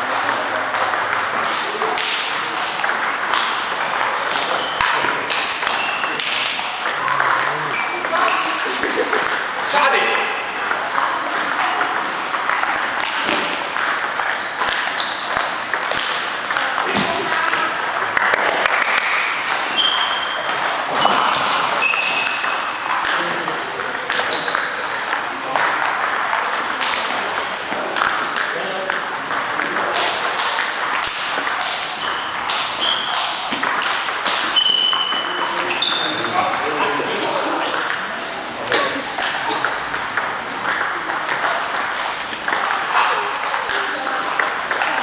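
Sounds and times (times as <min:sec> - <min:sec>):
sports hall background noise: 0:00.0 - 0:45.0
table tennis ball clicking: 0:00.2 - 0:09.7, 0:10.6 - 0:21.2, 0:21.8 - 0:36.6, 0:39.2 - 0:45.0
shoes squeaking on floor: 0:04.2 - 0:08.9, 0:12.5 - 0:17.7, 0:19.5 - 0:23.1, 0:24.0 - 0:24.9, 0:26.8 - 0:28.1, 0:31.4 - 0:43.6.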